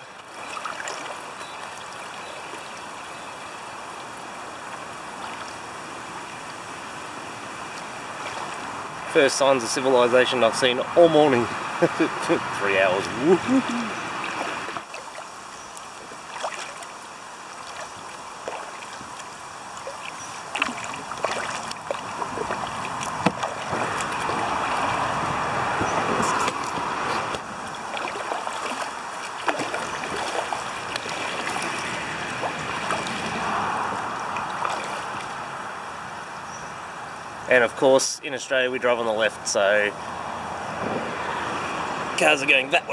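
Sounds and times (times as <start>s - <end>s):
kayak paddle splashing: 0.0s - 9.6s, 11.1s - 36.0s
freeway traffic: 3.1s - 16.2s, 18.3s - 42.9s.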